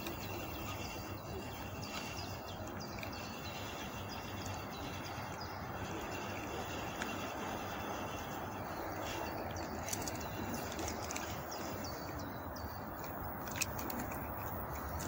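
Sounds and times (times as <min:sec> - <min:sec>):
outdoor background rush: 0:00.0 - 0:15.0
small birds chirping: 0:00.0 - 0:15.0.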